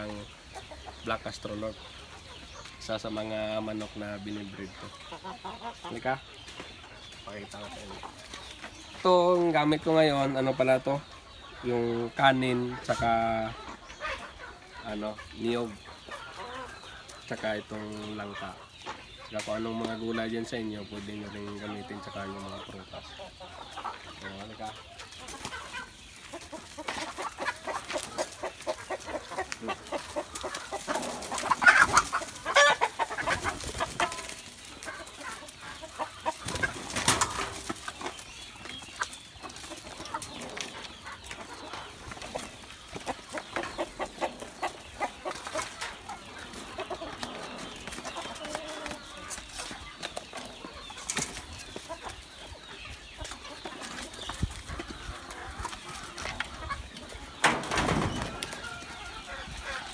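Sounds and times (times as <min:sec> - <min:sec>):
chickens clucking: 0:00.0 - 0:59.9
scuffling and pecking: 0:20.9 - 0:59.9.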